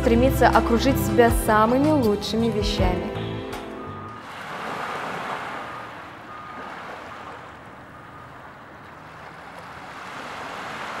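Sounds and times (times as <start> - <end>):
sea surf washing ashore: 4.2 - 11.0.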